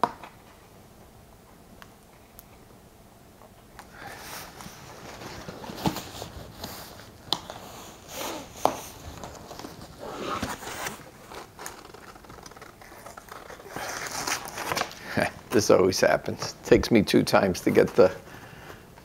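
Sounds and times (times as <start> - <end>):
cardboard scraping and rustling: 4.2 - 15.3.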